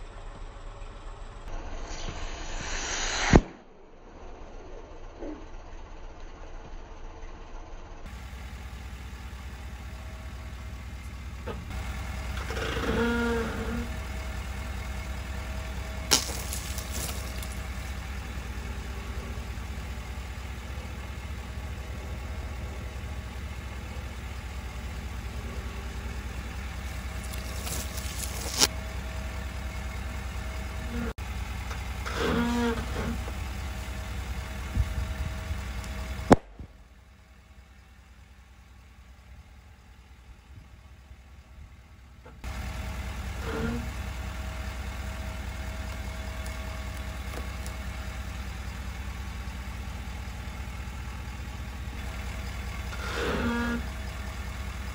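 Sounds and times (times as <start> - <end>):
pickup truck engine idling: 0.0 - 1.6, 4.1 - 54.9
sharp pops: 1.8 - 3.8, 16.0 - 17.9
short squeal: 12.4 - 14.0, 32.0 - 33.3, 43.4 - 44.0, 52.8 - 54.0
tyre crushing plastic: 16.1 - 17.7, 27.1 - 28.7.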